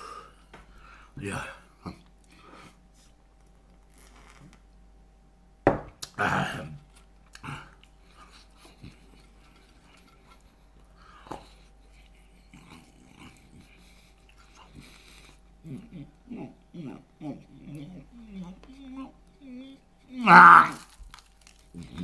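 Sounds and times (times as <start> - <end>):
rough throaty sound: 20.2 - 21.0.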